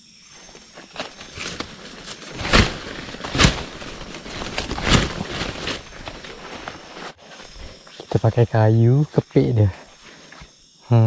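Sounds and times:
footsteps rustling through leaves: 0.4 - 7.6
loud thumps: 1.4 - 6.0.

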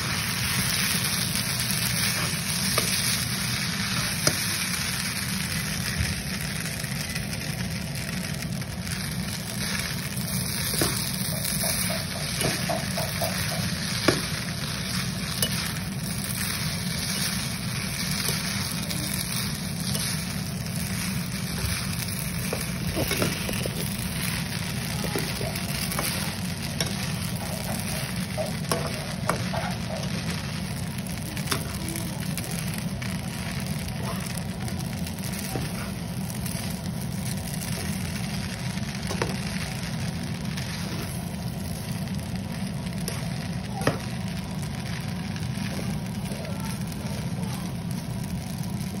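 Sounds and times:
noodles sizzling in a frying pan: 0.0 - 49.0.

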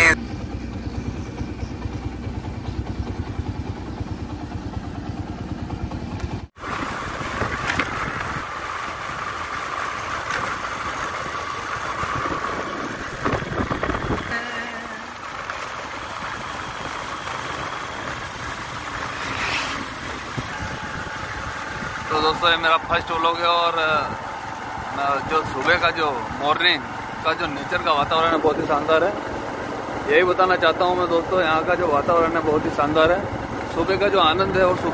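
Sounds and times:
motorcycle engine running: 0.0 - 34.9
wind rushing over microphone: 12.1 - 14.3.

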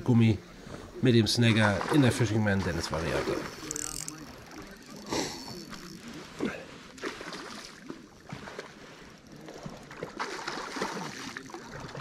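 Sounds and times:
fishing reel clicking: 2.8 - 6.2.

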